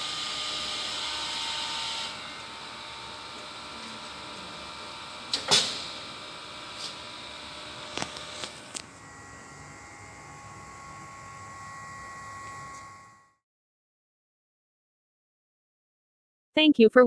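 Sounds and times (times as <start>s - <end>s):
machine electrical hum: 0.0s - 13.4s.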